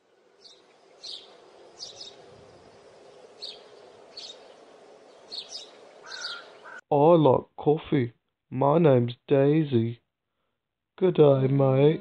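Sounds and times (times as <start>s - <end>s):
birds chirping: 0.0s - 6.8s.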